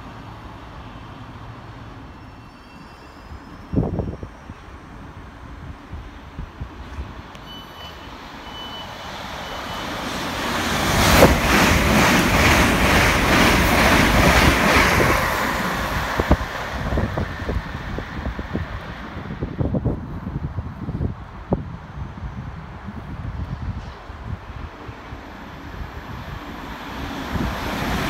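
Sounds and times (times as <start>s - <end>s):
passing electric train: 0.0s - 28.0s
short high beeps: 7.4s - 10.0s.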